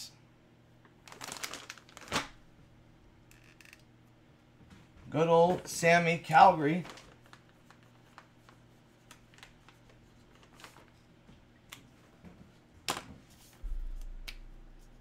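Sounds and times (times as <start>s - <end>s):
low thud: 13.6s - 14.3s.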